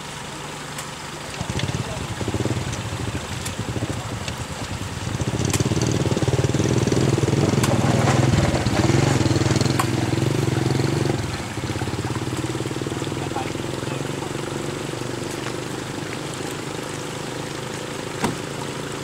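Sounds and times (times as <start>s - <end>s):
diesel engine running: 1.2s - 18.1s
sharp knocks: 18.2s - 18.4s.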